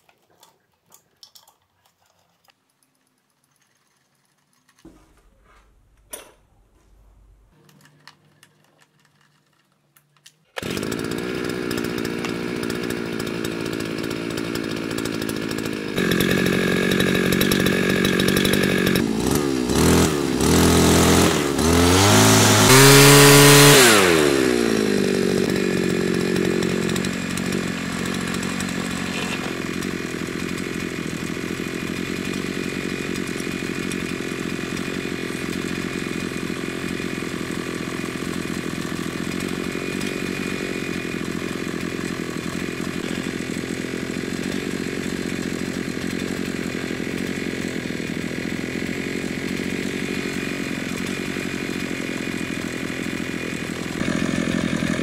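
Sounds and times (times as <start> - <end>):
brushcutter engine idling and revving: 10.6 - 55.0.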